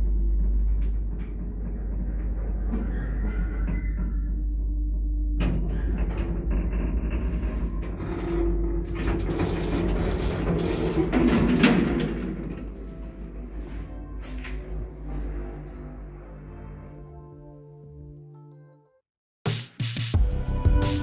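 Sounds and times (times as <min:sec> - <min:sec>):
doors rattling and clicking: 0:00.0 - 0:16.4
lift humming: 0:00.0 - 0:17.8
lift doors clunking open: 0:05.3 - 0:17.0.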